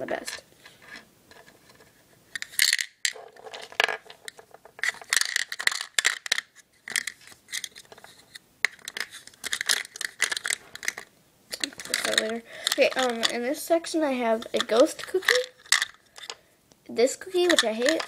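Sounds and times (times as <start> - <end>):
charms clattering on plastic box: 2.4 - 8.0, 8.6 - 13.4, 14.3 - 16.4, 17.2 - 18.0
small clay charms clicking together: 8.7 - 13.4.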